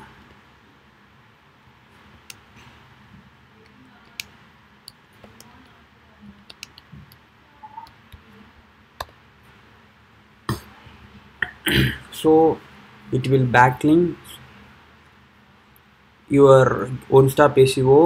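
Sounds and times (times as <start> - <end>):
computer keyboard keys clicking: 6.4 - 7.2.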